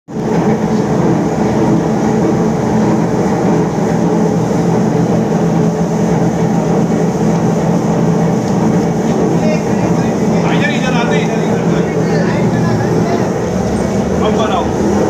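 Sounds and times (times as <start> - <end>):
roller mill droning: 0.1 - 15.0.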